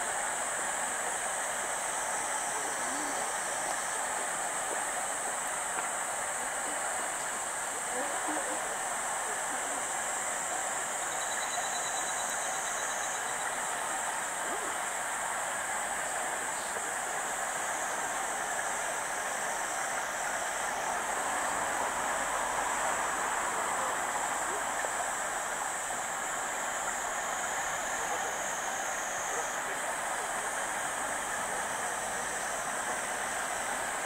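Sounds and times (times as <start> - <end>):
outdoor rushing hiss: 13.1 - 34.0.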